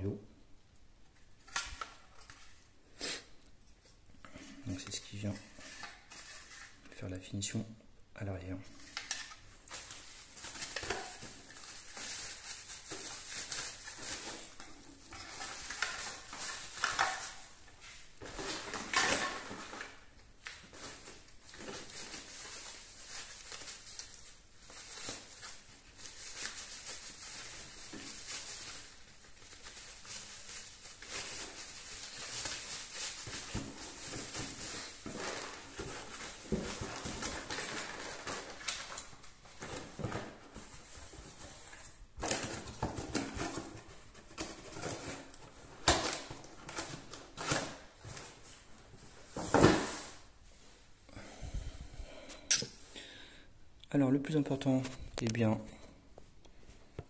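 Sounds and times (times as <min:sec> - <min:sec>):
plastic wrap crinkling: 0:01.1 - 0:02.8, 0:08.7 - 0:51.0
cardboard being moved: 0:41.4 - 0:50.3.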